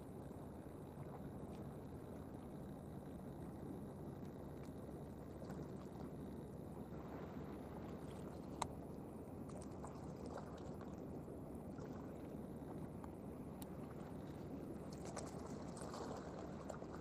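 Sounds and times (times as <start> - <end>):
shallow water rushing: 4.2 - 17.0.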